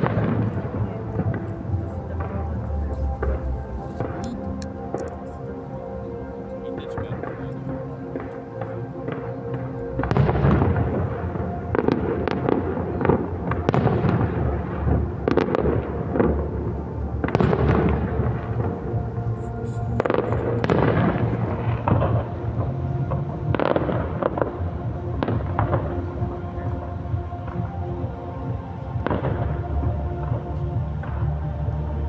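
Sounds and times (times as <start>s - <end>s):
fireworks bangs: 0.0s - 5.2s, 6.8s - 26.2s
show music with held tones: 0.0s - 32.0s.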